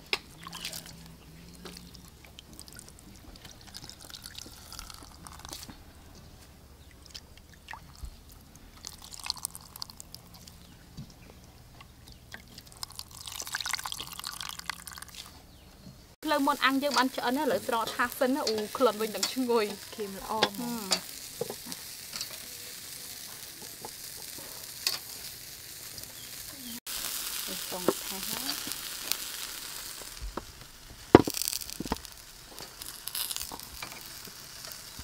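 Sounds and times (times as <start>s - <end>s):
liquid dripping and pouring: 0.0s - 10.8s, 11.8s - 15.4s, 31.2s - 35.0s.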